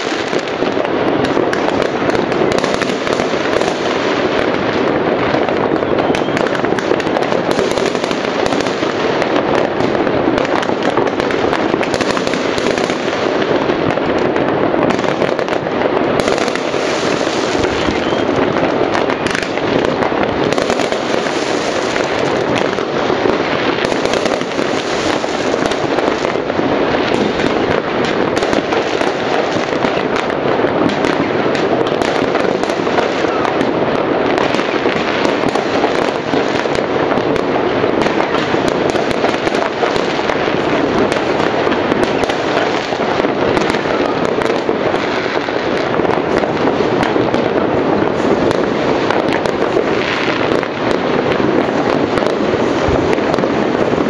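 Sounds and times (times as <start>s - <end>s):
fireworks bangs and crackles: 0.0s - 54.0s.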